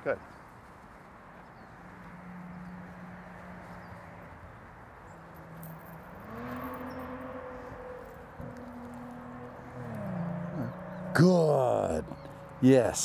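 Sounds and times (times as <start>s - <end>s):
vehicle engine humming: 1.0s - 13.0s.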